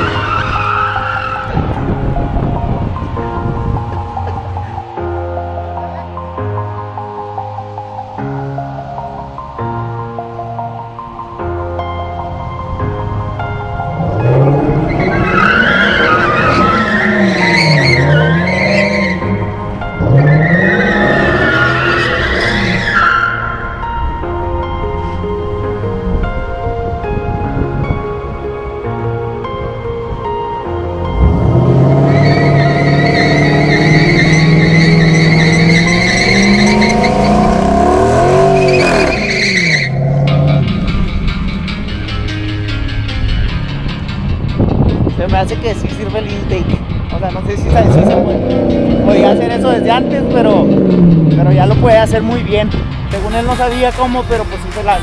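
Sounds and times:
car engine revving: 13.8s - 24.0s, 31.0s - 42.0s, 47.6s - 53.0s
tyres squealing: 14.8s - 23.6s, 31.8s - 40.6s.

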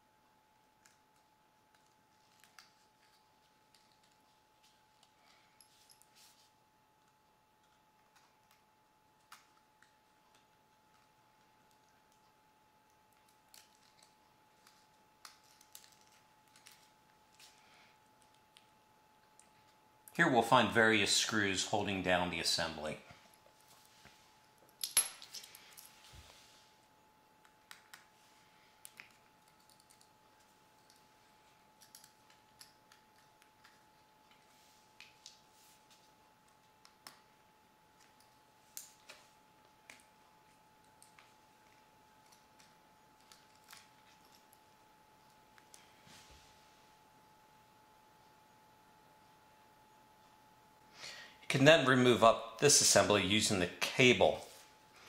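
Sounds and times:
faint high hum: 0.0s - 55.0s.

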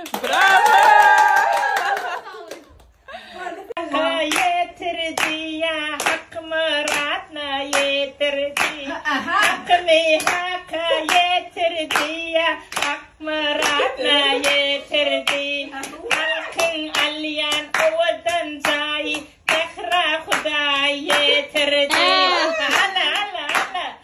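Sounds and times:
hands clapping: 0.0s - 3.0s, 8.6s - 8.8s, 10.2s - 10.5s, 11.9s - 13.0s, 15.2s - 21.3s, 21.9s - 23.9s
person singing: 3.8s - 24.0s.

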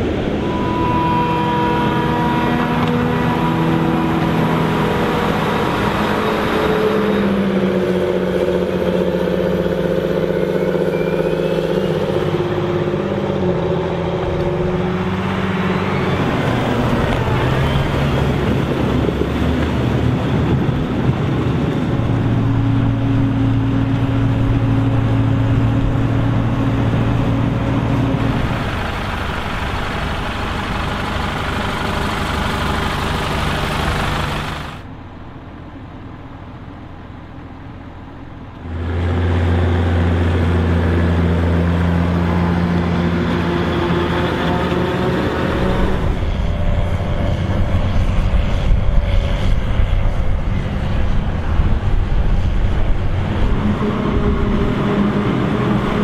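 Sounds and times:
heavy diesel engines running hard: 0.0s - 56.0s
tractor wheels spinning in mud: 24.7s - 34.8s.

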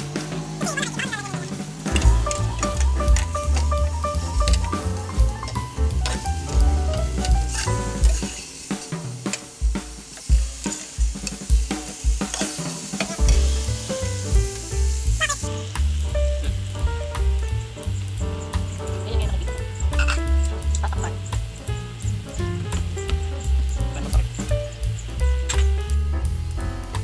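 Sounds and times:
chicken sizzling in hot oil: 0.0s - 27.0s
background music with deep beat: 1.6s - 27.0s.

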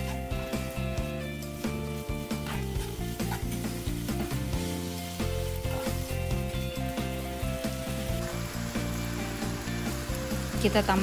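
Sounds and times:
spatula scraping a pan: 0.0s - 6.6s
background music with sustained chords: 0.0s - 11.0s
pork sizzling in a frying pan: 0.0s - 11.0s.

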